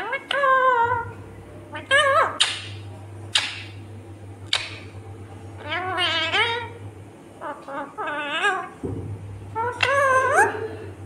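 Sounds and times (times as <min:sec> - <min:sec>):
parakeet calling: 0:00.0 - 0:01.1, 0:01.7 - 0:03.8, 0:05.6 - 0:06.8, 0:07.4 - 0:08.8, 0:09.5 - 0:10.7.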